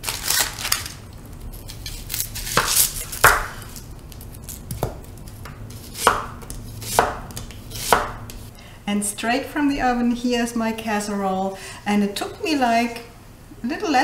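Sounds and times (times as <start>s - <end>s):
knife slicing onion on board: 1.7s - 3.8s, 4.6s - 8.5s.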